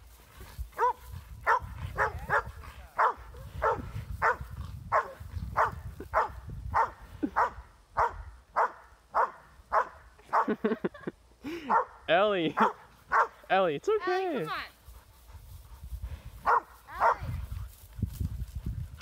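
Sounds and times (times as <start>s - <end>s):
dog barking: 0.8s - 10.6s, 11.7s - 12.0s, 12.6s - 13.4s, 16.4s - 17.3s.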